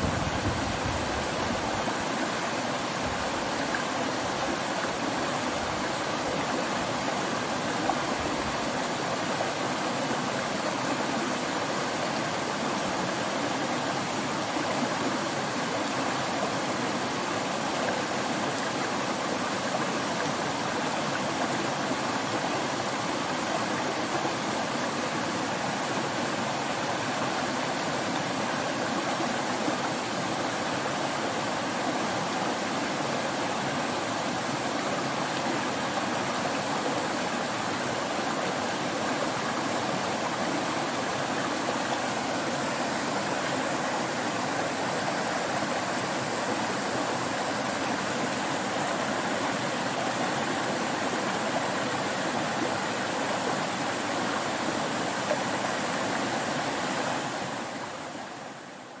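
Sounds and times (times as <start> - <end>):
stream rushing over rocks: 0.0 - 59.0.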